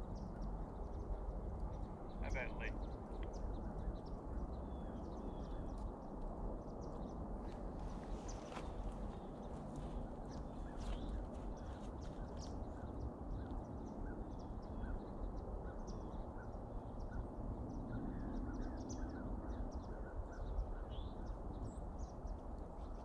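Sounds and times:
steady low background noise: 0.0 - 23.0.

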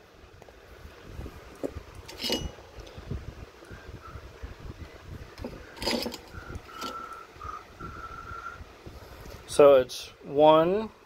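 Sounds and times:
rustling scrapes: 2.0 - 2.6.

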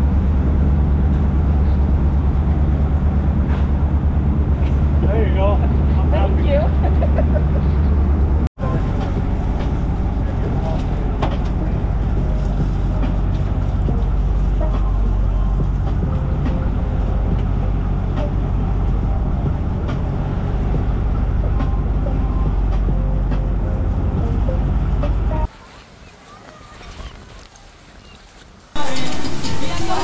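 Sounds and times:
boat engine droning: 0.0 - 25.6, 28.8 - 30.0.

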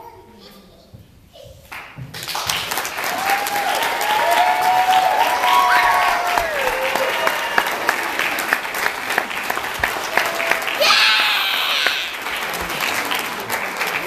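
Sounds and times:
guests clapping: 1.7 - 14.0
drawn-out cheers and whoops: 3.1 - 8.1, 10.1 - 12.2.

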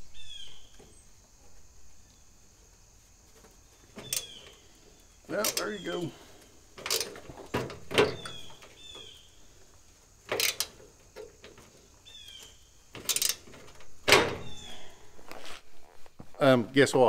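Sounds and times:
birds chirping: 0.0 - 2.7, 3.3 - 15.3
hand tools clicking and clanking: 3.9 - 9.2, 10.2 - 14.8.

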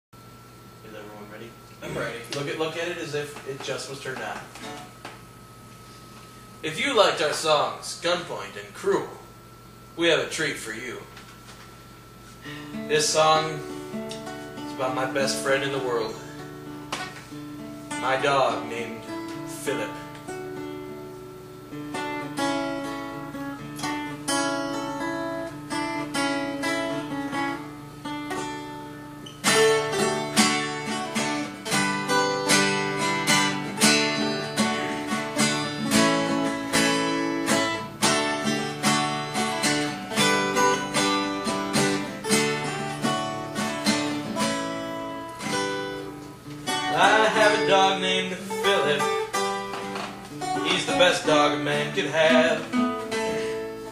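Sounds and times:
acoustic guitars strumming: 0.9 - 9.1, 11.3 - 53.9
person singing: 46.9 - 49.3, 50.5 - 52.8.

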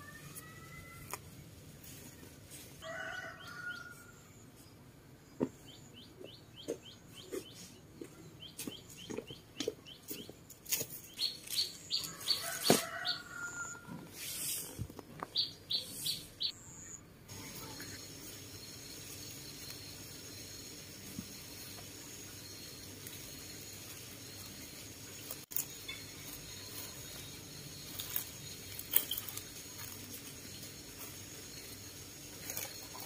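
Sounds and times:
birds chirping: 11.0 - 13.6, 15.1 - 17.0.

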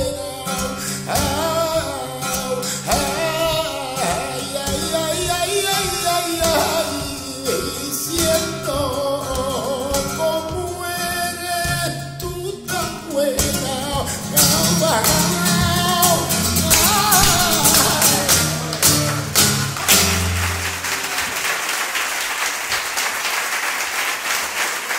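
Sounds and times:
man singing flamenco: 0.0 - 19.5
flamenco guitar: 0.0 - 23.0
audience applause: 16.9 - 24.9.

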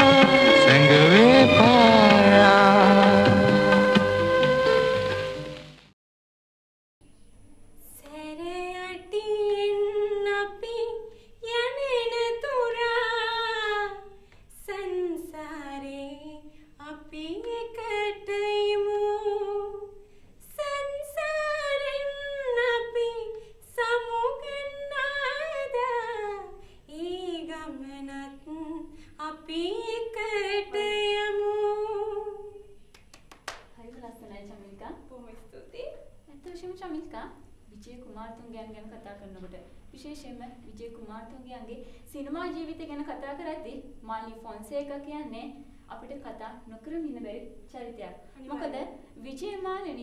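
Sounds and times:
breaths between phrases: 41.8 - 42.2.

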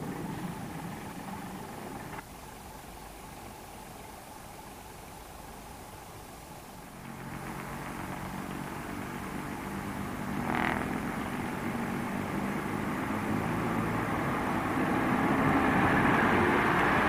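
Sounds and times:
diesel train engines running: 0.0 - 2.2, 6.9 - 17.0.

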